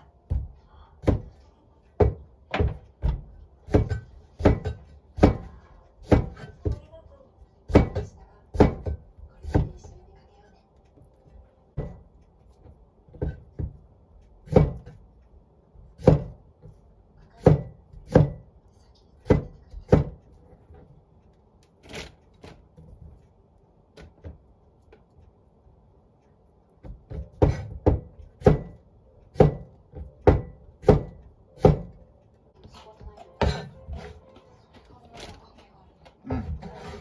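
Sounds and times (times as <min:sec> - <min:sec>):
cleaver chopping on cutting board: 0:00.3 - 0:01.3, 0:02.0 - 0:06.8, 0:07.7 - 0:09.9, 0:14.4 - 0:15.0, 0:16.0 - 0:16.4, 0:17.4 - 0:18.5, 0:19.2 - 0:20.2, 0:26.8 - 0:32.0.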